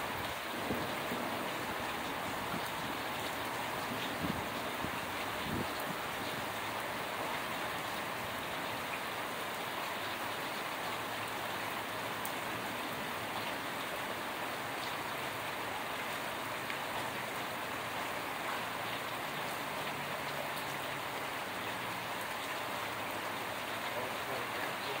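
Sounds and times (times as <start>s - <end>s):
heavy rain hissing: 18.6s - 25.0s.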